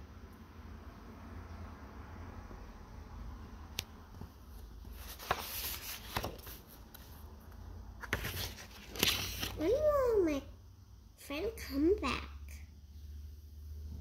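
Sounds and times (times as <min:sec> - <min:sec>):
paper rustling: 0:04.5 - 0:07.2, 0:08.0 - 0:09.8.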